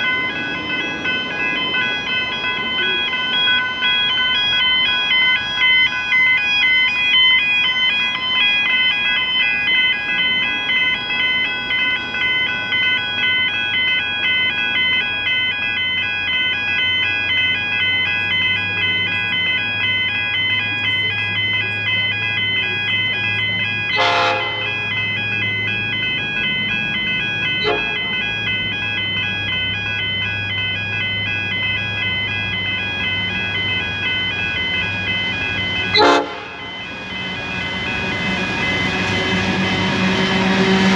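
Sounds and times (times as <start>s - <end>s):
diesel locomotive rumble: 0.0s - 40.9s
level crossing bells ringing: 0.0s - 40.9s
locomotive horn: 23.9s - 24.8s, 27.6s - 28.0s, 35.9s - 36.6s.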